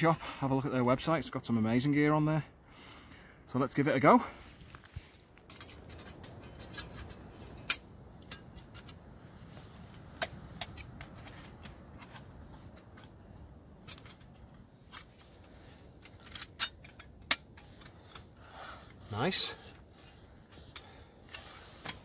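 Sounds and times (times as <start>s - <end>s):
metal panels clicking and clinking: 5.4s - 9.1s, 9.9s - 18.4s.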